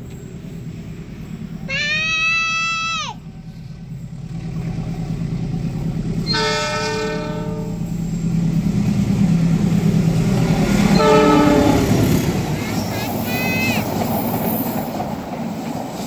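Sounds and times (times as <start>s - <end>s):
locomotive engine rumble: 0.0s - 16.0s
multi-tone train horn: 6.2s - 7.9s, 10.9s - 12.3s.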